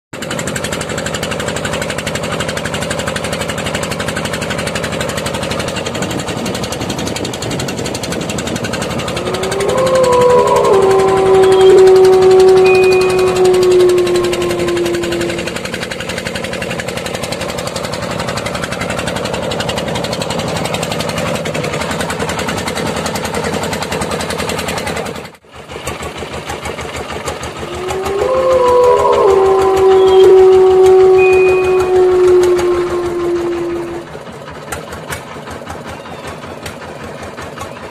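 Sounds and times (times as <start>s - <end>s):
boat engine chugging: 0.2s - 37.9s
long held tone: 8.6s - 15.9s, 27.6s - 34.2s.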